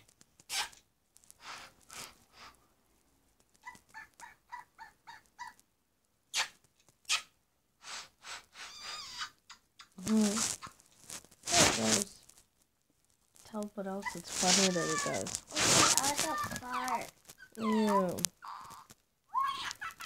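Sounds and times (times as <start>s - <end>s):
kissing smacks: 0.4s - 0.8s, 6.3s - 10.8s.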